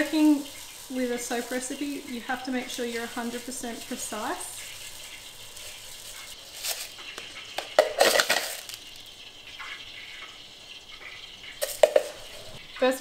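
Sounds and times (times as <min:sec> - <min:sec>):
granules clinking into plastic bowl: 0:06.6 - 0:08.9, 0:11.6 - 0:12.4.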